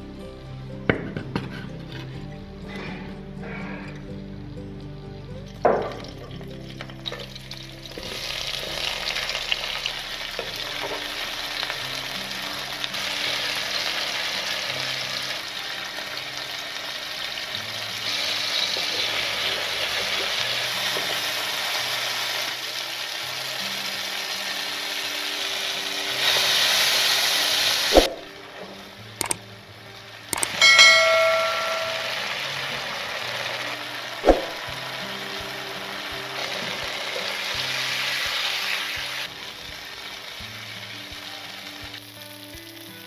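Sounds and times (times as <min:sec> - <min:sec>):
vegetables sizzling in hot oil: 0:05.1 - 0:43.0.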